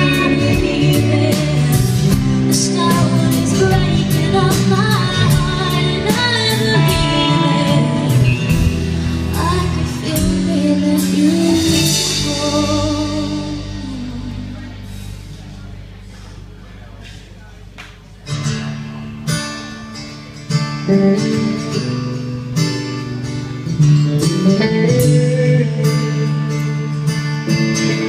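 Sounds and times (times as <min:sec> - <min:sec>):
woman singing: 0:00.0 - 0:14.8
electric guitar: 0:00.0 - 0:16.0, 0:18.2 - 0:28.0
electric bass: 0:00.0 - 0:16.6, 0:20.2 - 0:28.0
drums: 0:00.0 - 0:28.0.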